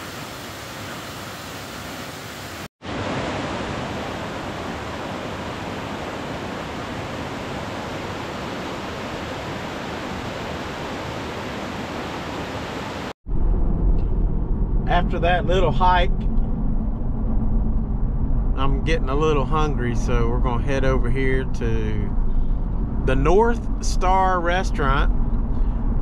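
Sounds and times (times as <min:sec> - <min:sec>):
waterfall rushing: 0:00.0 - 0:13.2.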